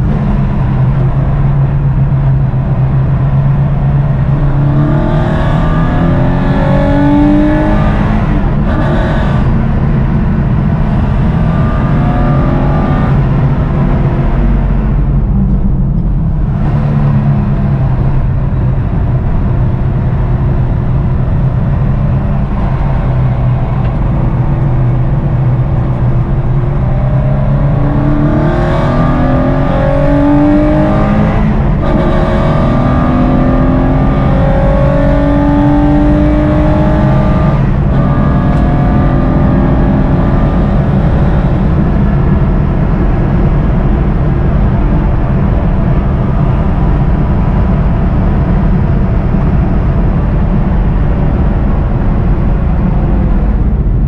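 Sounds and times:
car engine revving through gears: 0.0 - 54.0.

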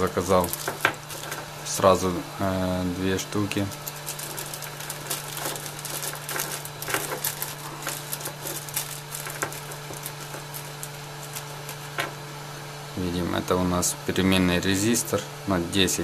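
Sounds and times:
hot air gun fan humming: 0.0 - 16.0
packet crinkling clicks: 0.1 - 1.5, 3.4 - 12.2.

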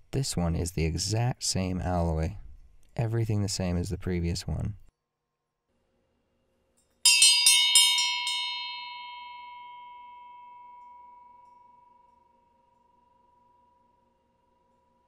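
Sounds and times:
cracked bell ringing: 7.1 - 15.0.

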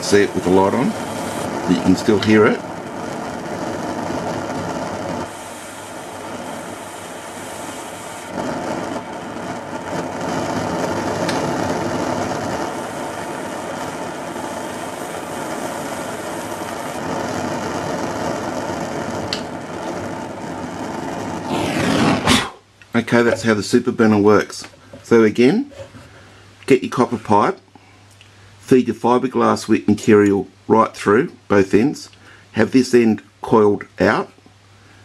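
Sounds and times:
jet burner roaring: 0.0 - 24.2.

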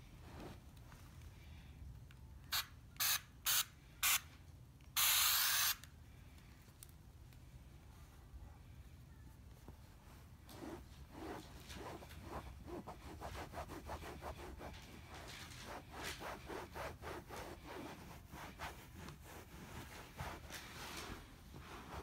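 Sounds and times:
cloth rubbing on leather: 10.1 - 22.0.

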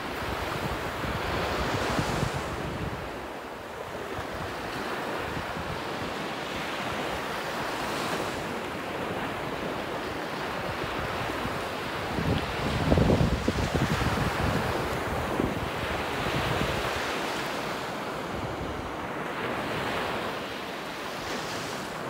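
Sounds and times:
wind rumbling on microphone: 0.0 - 6.2, 10.5 - 17.4
small waves breaking on beach: 0.0 - 22.0.

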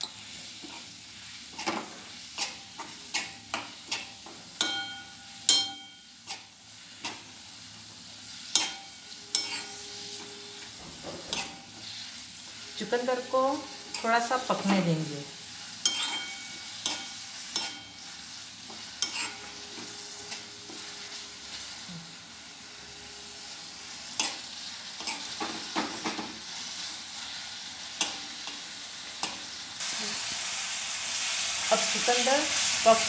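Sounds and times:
beetroot sizzling in pan: 0.0 - 33.0
steel spoon scraping pan: 8.3 - 13.1, 15.8 - 21.6, 22.8 - 25.7.

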